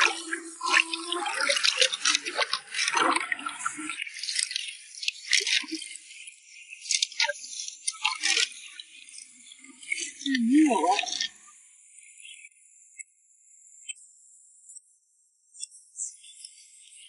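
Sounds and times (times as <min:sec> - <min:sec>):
water drips: 0:00.0 - 0:06.0, 0:06.9 - 0:09.2, 0:09.8 - 0:11.3.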